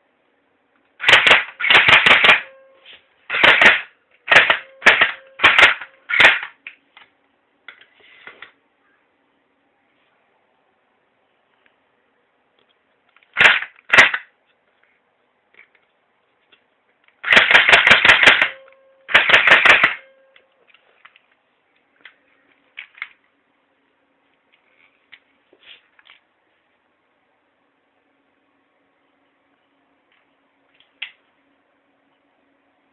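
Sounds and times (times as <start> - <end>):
rifle shots: 1.0 - 2.5, 3.3 - 6.6, 13.4 - 14.3, 17.2 - 20.0.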